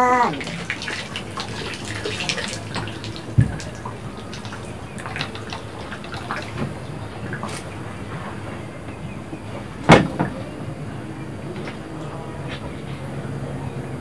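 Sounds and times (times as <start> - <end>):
water splashing and dripping: 0.0 - 8.5
dull thump: 9.9 - 10.4.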